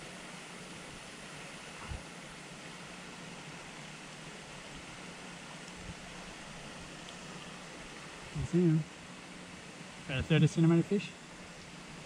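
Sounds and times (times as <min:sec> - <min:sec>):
stream running over rocks: 0:00.0 - 0:12.0.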